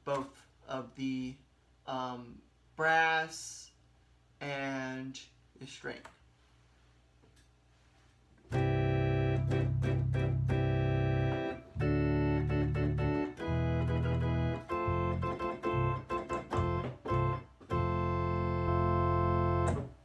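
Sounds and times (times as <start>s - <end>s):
electronic organ chords: 8.5s - 20.0s.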